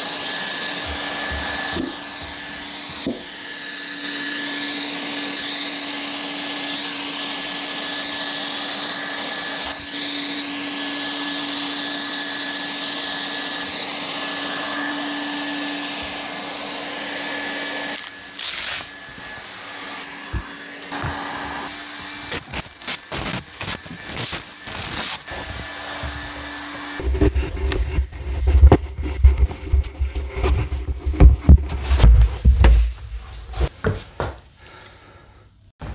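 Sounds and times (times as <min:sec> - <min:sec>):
hot air gun blower whine: 0:00.0 - 0:30.4
heavy thumps: 0:27.0 - 0:34.4.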